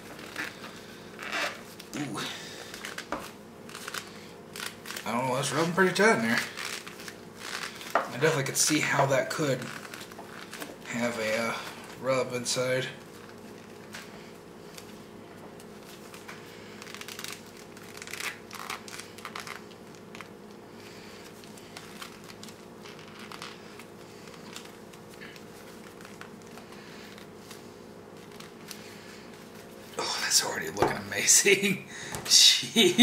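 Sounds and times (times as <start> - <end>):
steady low hum: 0.0 - 33.0
cloth rubbing: 15.8 - 29.9.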